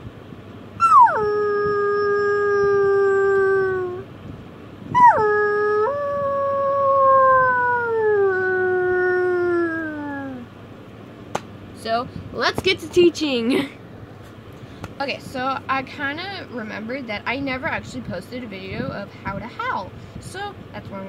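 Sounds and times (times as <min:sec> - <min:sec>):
person imitating wolf howl: 0:00.8 - 0:04.1, 0:04.9 - 0:10.5.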